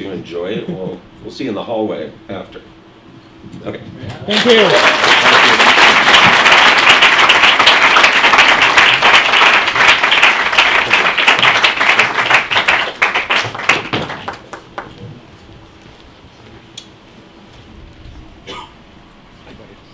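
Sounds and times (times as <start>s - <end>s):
audience applauding: 4.3s - 15.0s.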